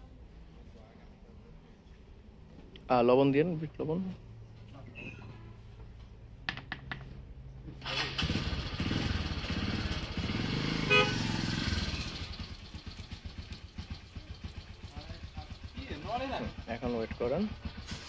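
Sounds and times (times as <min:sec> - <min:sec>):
vehicle engine passing: 0:07.6 - 0:18.0
car horn beep: 0:10.8 - 0:11.4.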